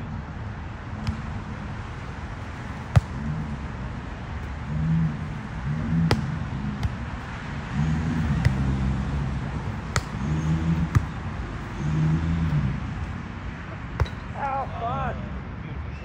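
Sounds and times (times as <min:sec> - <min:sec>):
low hum: 0:00.0 - 0:14.3
volleyball being struck: 0:01.0 - 0:01.5, 0:02.8 - 0:03.3, 0:06.1 - 0:07.0, 0:08.2 - 0:08.8, 0:09.9 - 0:11.2, 0:14.0 - 0:14.3.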